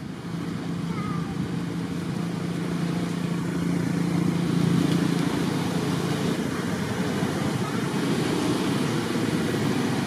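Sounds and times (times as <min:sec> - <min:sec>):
engine droning: 0:00.0 - 0:10.0.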